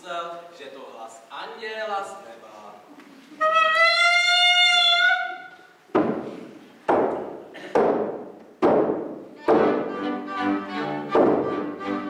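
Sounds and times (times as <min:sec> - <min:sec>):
heavy thumps ringing in hall: 0:05.9 - 0:09.9, 0:11.1 - 0:11.6
fiddle music: 0:09.4 - 0:12.0.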